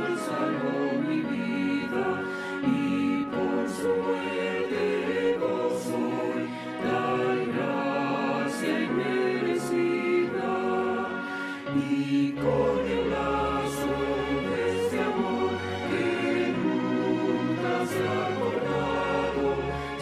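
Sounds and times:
choir singing a hymn: 0.0s - 20.0s.

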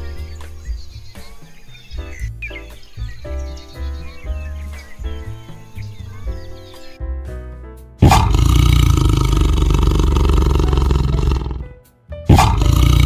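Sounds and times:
background music: 0.0s - 13.0s
large animal roaring: 8.0s - 11.7s, 12.3s - 13.0s.

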